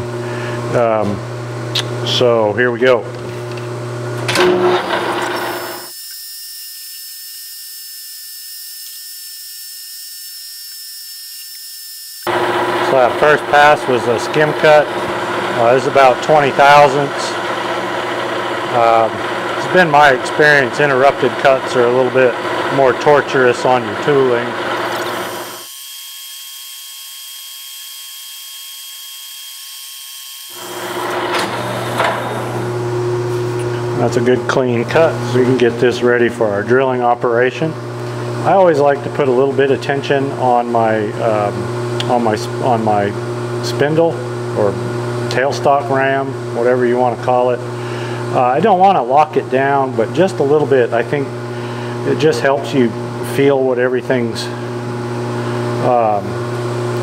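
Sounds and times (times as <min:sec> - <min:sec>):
motor hum: 0:03.1 - 0:36.5
lathe cutting high-pitched whine: 0:04.7 - 0:32.8
lathe cutting hiss and whine: 0:04.8 - 0:09.5, 0:24.4 - 0:32.8.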